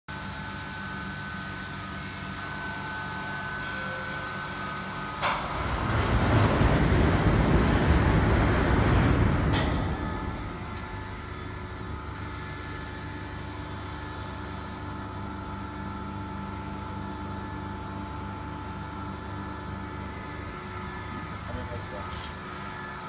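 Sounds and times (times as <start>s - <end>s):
machine humming: 0.1s - 23.0s
loud rushing air: 5.4s - 11.7s.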